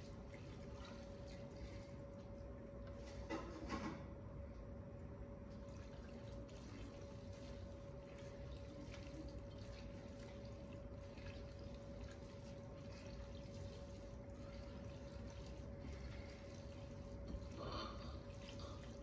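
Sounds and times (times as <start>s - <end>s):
faint steady hum: 0.0s - 19.0s
hand squishing noodles in bowl: 6.6s - 17.6s.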